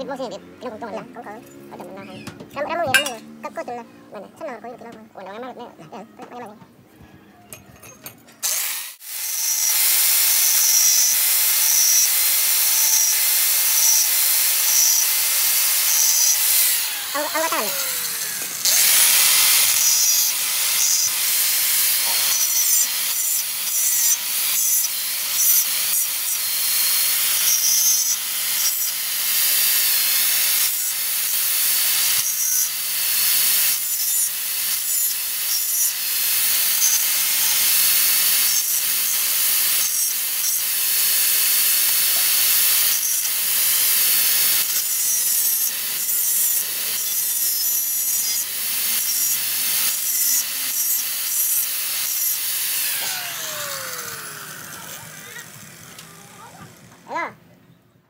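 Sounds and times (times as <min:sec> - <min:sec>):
angle grinder grinding steel: 0:00.0 - 0:06.6, 0:07.5 - 0:57.4.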